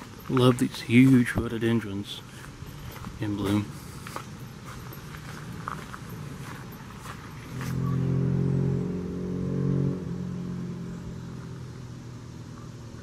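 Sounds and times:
vehicle engine droning: 0:00.0 - 0:13.0.

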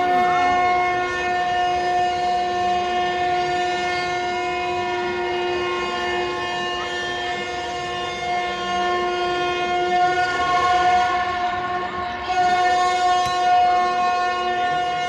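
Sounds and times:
conch shells blowing: 0:12.2 - 0:15.0.

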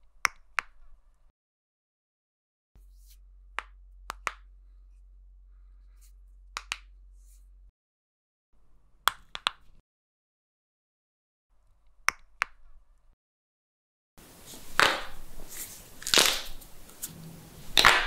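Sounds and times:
knuckles cracking: 0:16.0 - 0:17.1.

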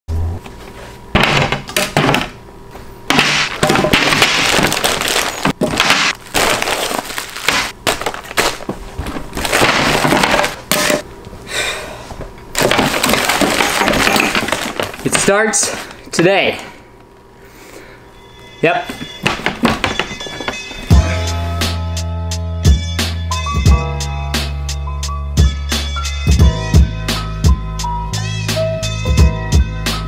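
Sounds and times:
items knocking on glass table: 0:01.2 - 0:02.4, 0:03.1 - 0:06.2, 0:19.0 - 0:20.7
bags crackling and rustling: 0:03.6 - 0:10.7, 0:12.5 - 0:16.0.

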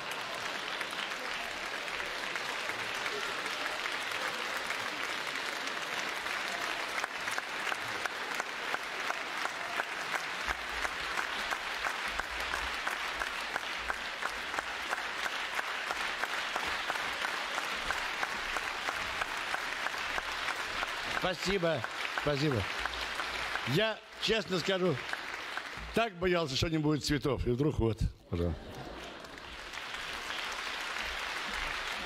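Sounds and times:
rhythmic clapping in unison: 0:00.0 - 0:26.5, 0:28.7 - 0:32.0
audience applauding: 0:00.0 - 0:26.8, 0:28.4 - 0:32.0.

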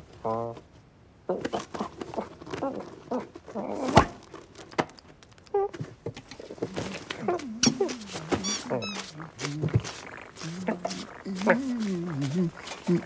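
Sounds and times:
cartoon cat vocal noises: 0:05.5 - 0:13.0.

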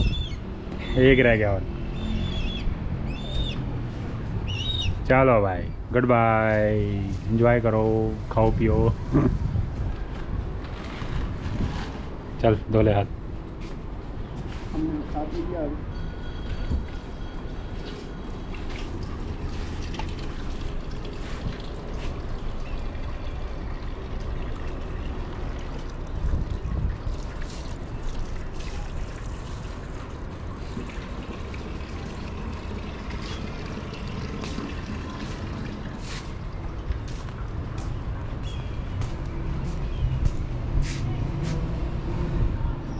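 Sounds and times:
tap water running into sink: 0:18.5 - 0:36.4.

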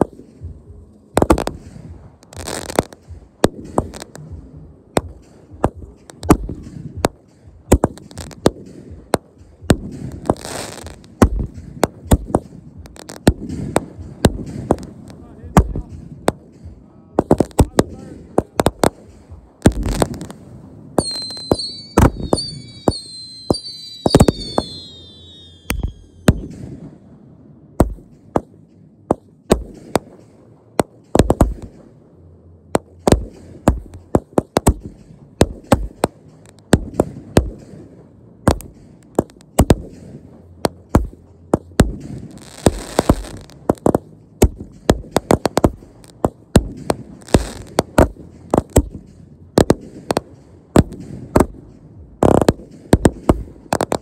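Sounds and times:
fireworks bangs: 0:00.0 - 0:32.0, 0:32.7 - 0:54.0
firework whistles gliding down: 0:21.0 - 0:26.6.

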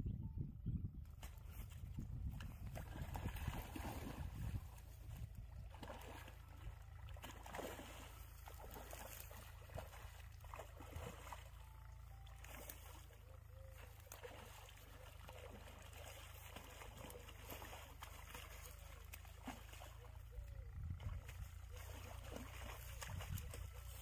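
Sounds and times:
steady low hum: 0:00.0 - 0:24.0
fish splashing at water surface: 0:05.6 - 0:11.6, 0:12.4 - 0:20.2.

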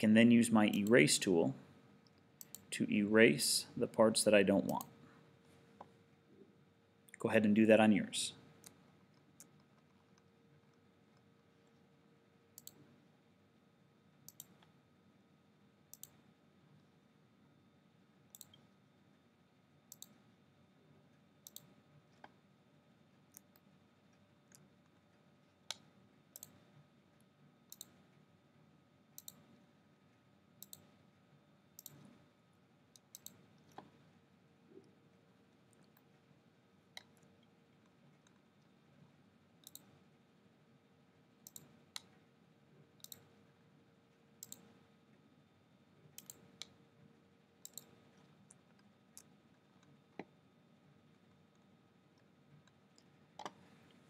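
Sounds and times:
low hum and hiss: 0:00.0 - 0:54.0
computer mouse clicks: 0:02.0 - 0:02.7, 0:04.6 - 0:04.9, 0:12.6 - 0:12.8, 0:14.3 - 0:14.8, 0:15.9 - 0:16.2, 0:18.3 - 0:18.7, 0:19.9 - 0:20.2, 0:21.4 - 0:22.4, 0:23.3 - 0:23.7, 0:25.7 - 0:26.6, 0:27.7 - 0:28.1, 0:29.2 - 0:29.6, 0:30.6 - 0:31.0, 0:31.8 - 0:32.2, 0:32.9 - 0:34.0, 0:39.6 - 0:40.0, 0:41.4 - 0:42.2, 0:43.0 - 0:43.4, 0:44.4 - 0:44.8, 0:46.2 - 0:46.8, 0:47.6 - 0:50.3, 0:51.5 - 0:53.7.

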